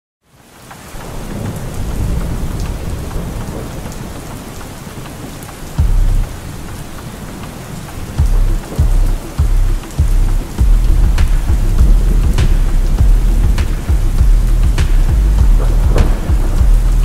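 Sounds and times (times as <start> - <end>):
rain pattering: 0.2 - 17.0
thunder rumbling: 0.9 - 17.0
loud deep boom: 5.8 - 6.3, 8.2 - 17.0.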